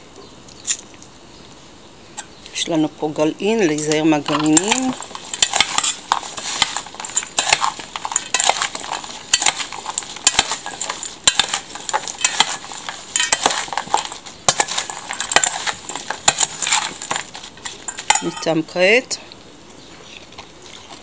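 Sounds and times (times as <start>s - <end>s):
squelching stirred fruit mix: 2.5s - 19.4s, 20.0s - 21.0s
spoon clinking and scraping bowl: 3.7s - 18.6s.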